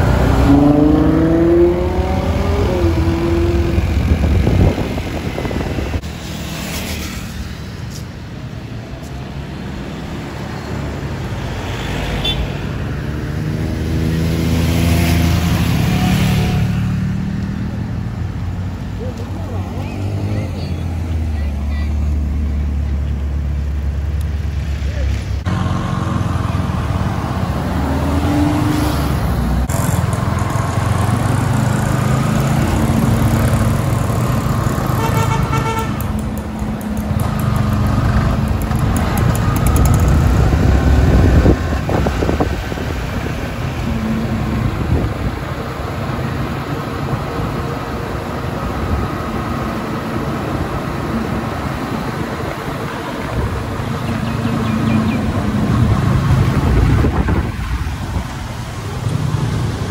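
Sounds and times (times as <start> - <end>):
road and traffic noise: 0.0 - 59.9
vehicle horn honking: 35.0 - 36.1.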